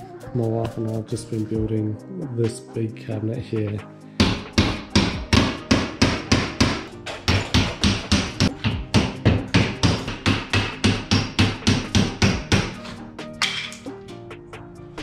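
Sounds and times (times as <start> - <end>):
hammer chipping ceramic tiles: 4.3 - 13.8.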